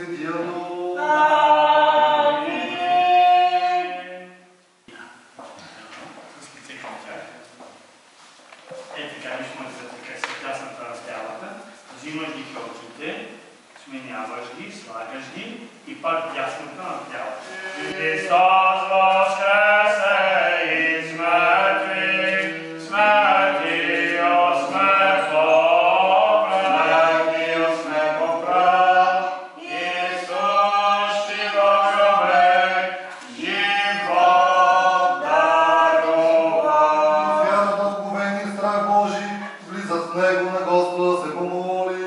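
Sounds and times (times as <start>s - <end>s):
choir chanting: 0.0s - 4.4s, 17.4s - 39.5s.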